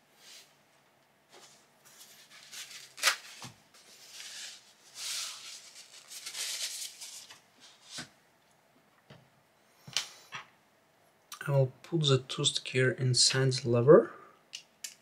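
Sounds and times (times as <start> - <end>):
hands rustling small parts: 1.3 - 8.0.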